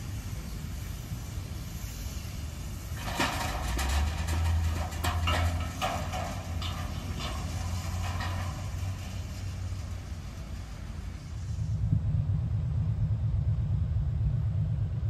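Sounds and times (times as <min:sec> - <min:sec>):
steam locomotive exhaust beats: 0:00.0 - 0:15.0
low rumble: 0:03.0 - 0:15.0.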